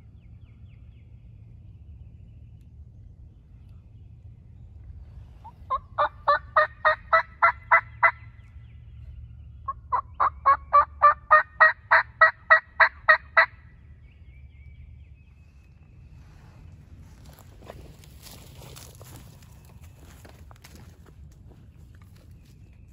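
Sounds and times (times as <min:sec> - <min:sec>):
turkey call yelps: 0:05.4 - 0:08.2, 0:09.7 - 0:13.6.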